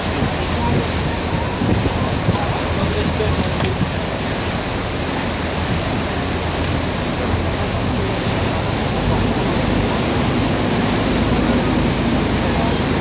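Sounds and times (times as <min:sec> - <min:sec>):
boat engine humming: 0:00.0 - 0:13.0
water rushing along boat hull: 0:00.0 - 0:13.0.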